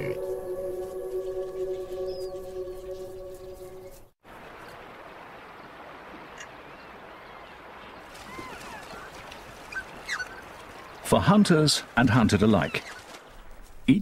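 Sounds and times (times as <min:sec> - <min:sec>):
held music chord: 0:00.0 - 0:04.1
river water rushing: 0:04.2 - 0:12.1.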